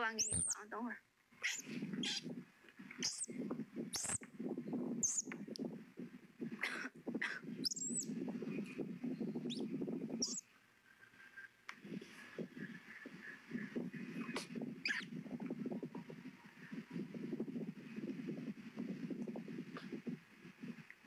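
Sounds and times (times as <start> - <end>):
monkeys chirping: 0.0 - 0.6, 1.4 - 2.3, 3.0 - 3.3, 4.0 - 4.2, 5.0 - 5.3, 7.6 - 8.0, 10.2 - 10.4, 14.2 - 15.1.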